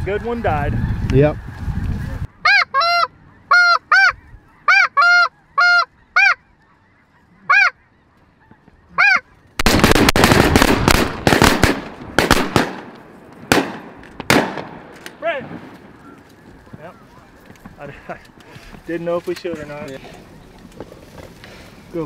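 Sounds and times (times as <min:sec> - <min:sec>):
geese honking: 0:00.0 - 0:09.6, 0:15.7 - 0:21.3.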